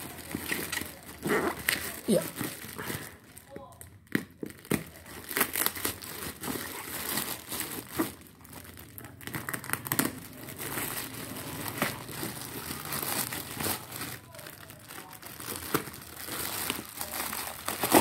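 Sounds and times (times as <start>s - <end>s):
plastic bag crinkling: 0.0s - 18.0s
knife cutting plastic: 16.6s - 18.0s.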